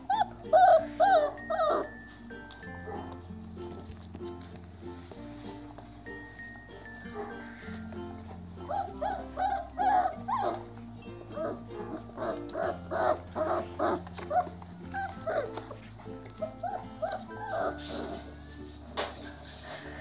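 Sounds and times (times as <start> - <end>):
puppies yipping and whimpering: 0.0 - 3.2, 6.9 - 18.5
background music: 0.0 - 20.0.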